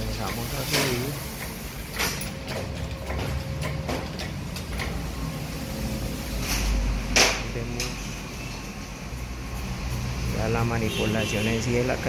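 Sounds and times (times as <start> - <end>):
hydraulic jack pumping: 0.0 - 5.5
pump handle clicks and knocks: 2.0 - 5.1.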